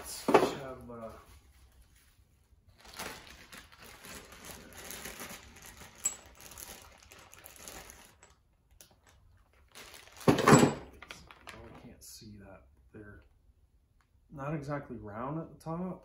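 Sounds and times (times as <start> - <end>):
plastic bag rustling: 0.8 - 11.8.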